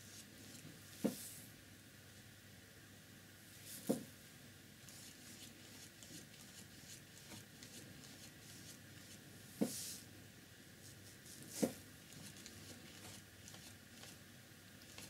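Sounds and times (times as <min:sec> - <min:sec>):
paintbrush swishing on paper: 0:00.0 - 0:01.4, 0:04.8 - 0:10.1, 0:10.8 - 0:14.2.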